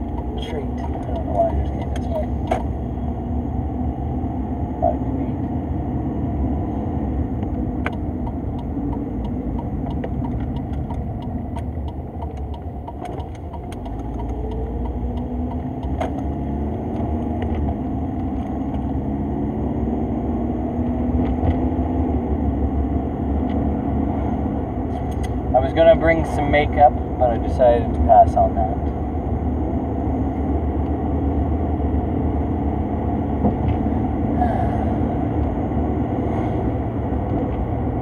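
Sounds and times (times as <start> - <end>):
light regular ticking: 0.0 - 2.6, 7.4 - 16.4
car engine from inside cabin: 0.0 - 38.0.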